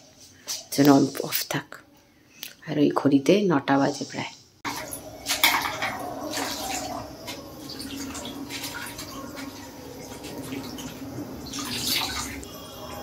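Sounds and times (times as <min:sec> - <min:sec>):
water splashing in a bowl: 0:04.7 - 0:12.5.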